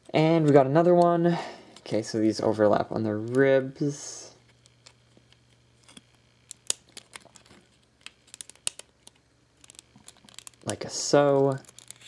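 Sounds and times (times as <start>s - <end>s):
plastic pieces clicking: 5.8s - 10.7s, 11.4s - 12.0s.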